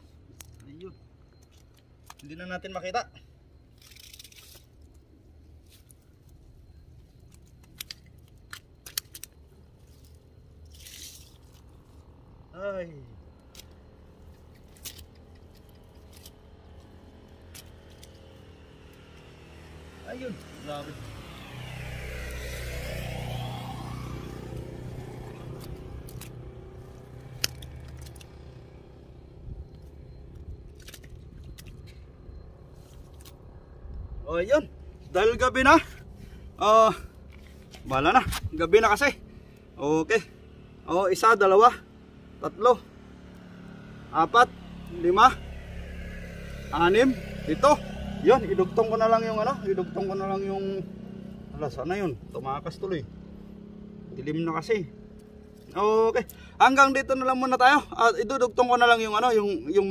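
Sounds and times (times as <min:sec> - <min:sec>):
fishing net clicks and scrapes: 0:03.7 - 0:05.0, 0:07.2 - 0:12.0, 0:13.5 - 0:16.6, 0:27.3 - 0:28.3, 0:30.7 - 0:32.0
vehicle passing on road: 0:09.4 - 0:59.9
sharp clicks: 0:27.3 - 0:28.4.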